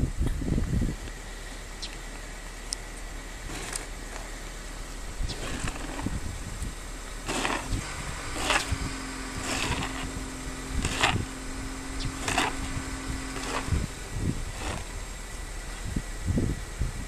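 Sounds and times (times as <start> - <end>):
snow shovel scraping: 3.4 - 4.4, 5.2 - 15.1.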